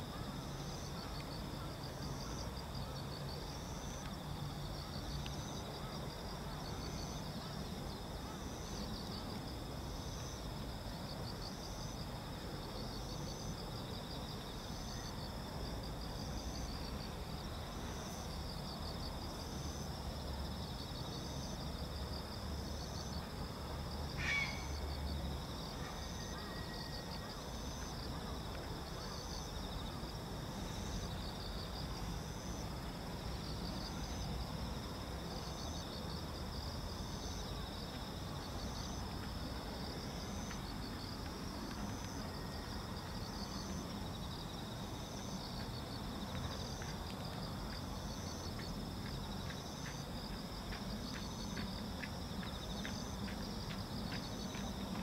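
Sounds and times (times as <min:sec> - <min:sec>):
insects trilling and chirping: 0:00.0 - 0:55.0
faint ticks: 0:05.1 - 0:05.4, 0:40.4 - 0:44.0, 0:45.5 - 0:55.0.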